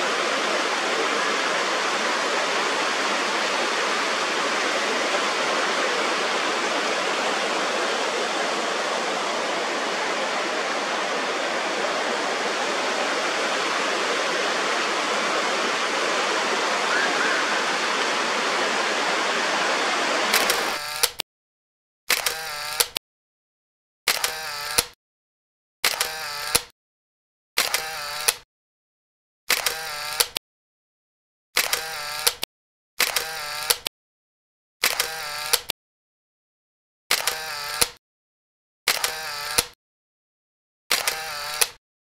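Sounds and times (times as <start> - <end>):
stream rushing over rocks: 0.0 - 20.8.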